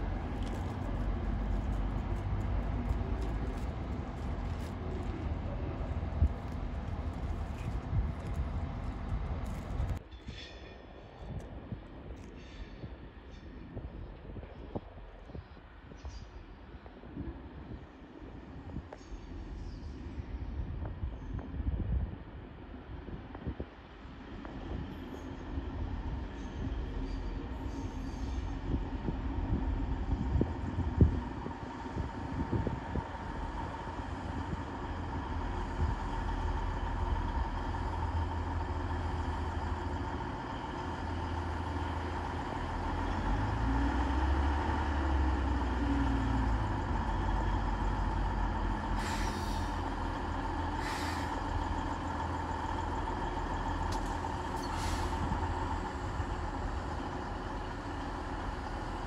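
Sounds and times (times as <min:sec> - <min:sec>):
diesel train engines humming: 0:00.0 - 0:10.0, 0:10.9 - 0:59.0
air brake hisses: 0:49.0 - 0:49.8, 0:50.8 - 0:51.4, 0:54.6 - 0:55.3.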